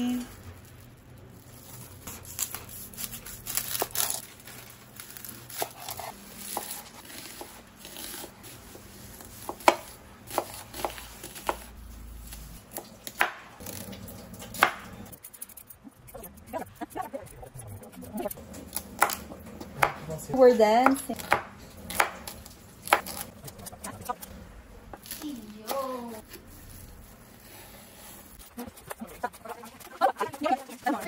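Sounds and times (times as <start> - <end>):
plastic wrap crinkling: 0.0 - 7.0.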